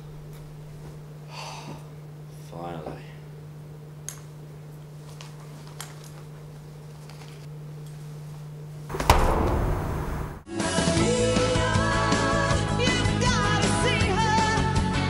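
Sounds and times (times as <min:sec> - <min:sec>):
low steady hum: 0:06.6 - 0:10.5
sharp knock: 0:08.9 - 0:10.5
sudden loud burst of noise: 0:08.9 - 0:10.6.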